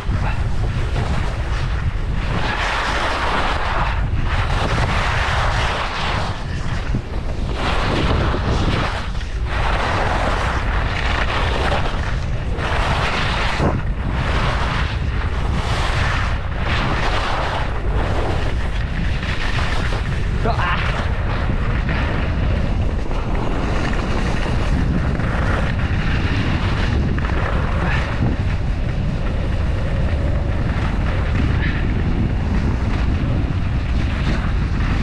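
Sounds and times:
skis scraping on snow: 0.0 - 35.0
wind buffeting microphone: 0.0 - 35.0.

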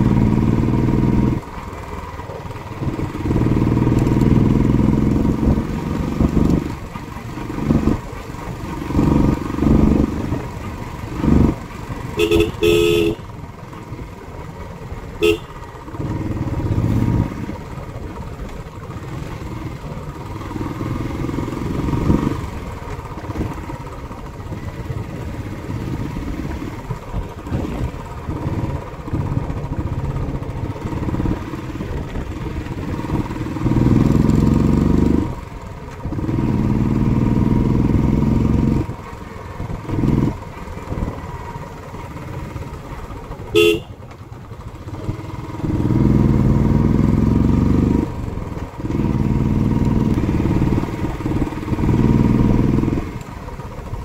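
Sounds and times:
motorcycle engine running: 0.0 - 54.0
horn tooting: 12.1 - 13.3, 15.2 - 15.7, 43.5 - 44.0.

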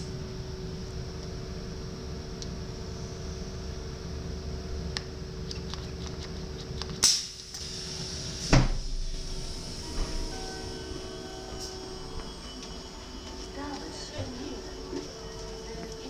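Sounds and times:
steady train hum: 0.0 - 5.0, 7.2 - 16.0
sharp snap: 7.0 - 7.4
train door thumping open: 8.5 - 10.7.

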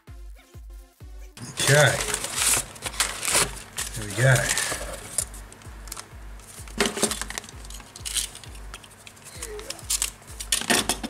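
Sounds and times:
background music with low beat: 0.0 - 11.0
paper wrapping rustling: 1.4 - 10.8
utility knife slitting paper: 1.5 - 5.2.

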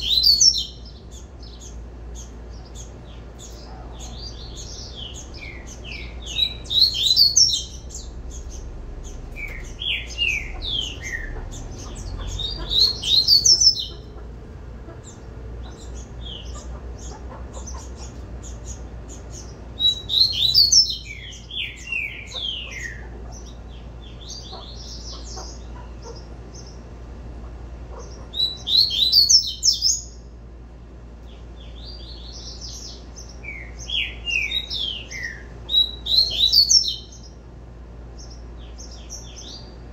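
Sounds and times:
bird whistled song: 0.0 - 1.7, 2.8 - 14.0, 19.4 - 23.1, 28.3 - 30.2, 31.8 - 37.3
soft bird twittering: 0.0 - 14.3, 14.9 - 27.0, 27.9 - 30.3, 31.2 - 37.4.

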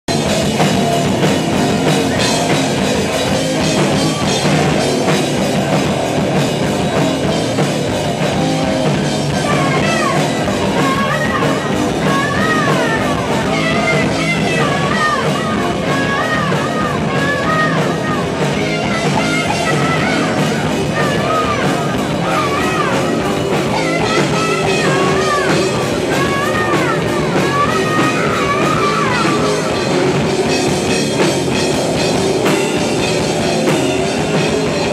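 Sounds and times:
rock band playing: 0.0 - 34.9
woman singing: 8.2 - 31.0.

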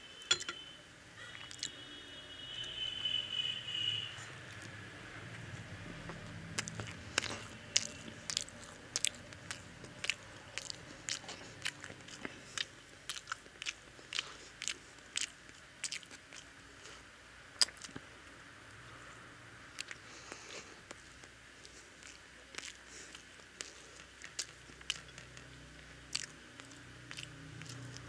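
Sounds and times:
person chewing crunchy toast: 5.8 - 18.1, 19.8 - 28.0.

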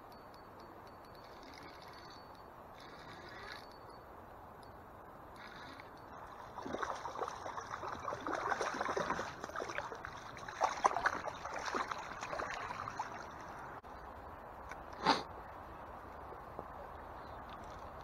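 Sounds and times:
fish splashing in water: 6.3 - 13.5.

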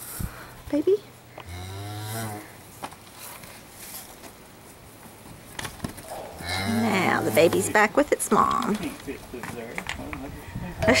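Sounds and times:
cow mooing: 1.4 - 2.6, 6.0 - 7.8
faint rustling: 2.7 - 9.8.

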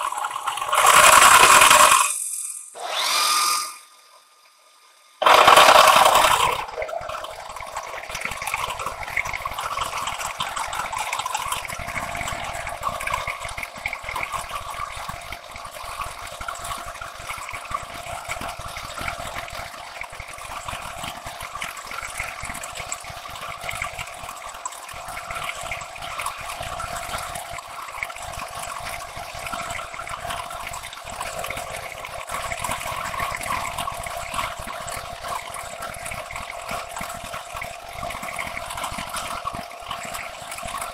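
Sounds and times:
milling cutter cutting metal: 0.0 - 3.9.

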